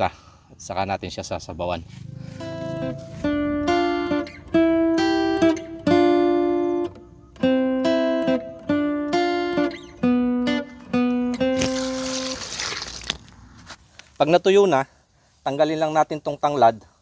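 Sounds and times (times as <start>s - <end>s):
acoustic guitar plucking melody: 2.2s - 13.0s.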